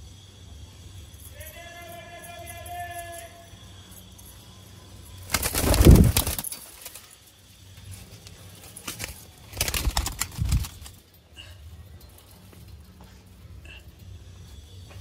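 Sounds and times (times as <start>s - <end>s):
pigeons flapping wings: 5.2s - 7.2s, 8.0s - 11.0s.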